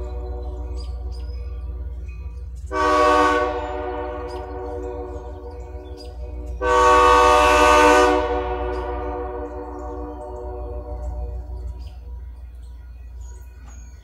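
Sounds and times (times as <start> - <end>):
steady low rumble: 0.0 - 14.0
locomotive air horn blasts: 2.7 - 11.8.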